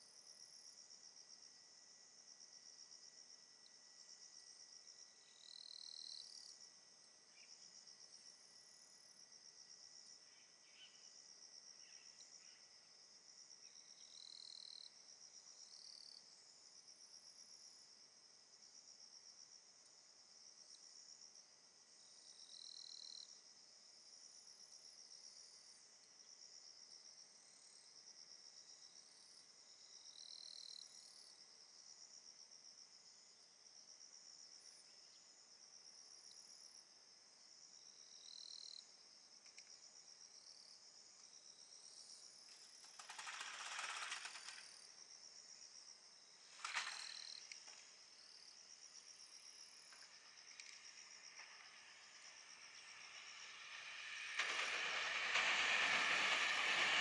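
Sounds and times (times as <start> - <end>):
insects chirring: 0.0 - 57.0
hiss: 42.9 - 44.7, 49.7 - 57.0
short sharp noise: 51.5 - 57.0.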